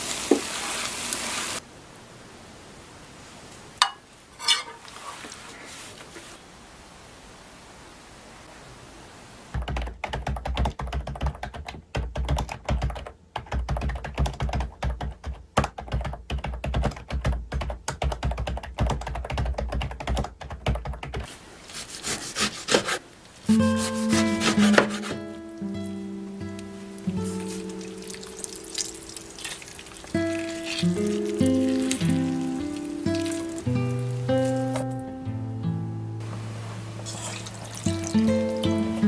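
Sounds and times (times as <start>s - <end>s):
fast typing on computer keyboard: 9.6s - 21.3s
knife chopping on wooden board: 22.0s - 23.0s, 23.8s - 25.2s
background music: 23.5s - 29.4s, 30.2s - 37.0s, 37.6s - 39.0s.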